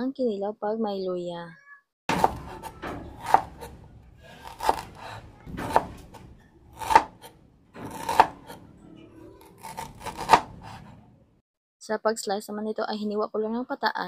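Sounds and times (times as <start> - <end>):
knife slicing on cutting board: 2.1 - 8.6, 9.4 - 11.0.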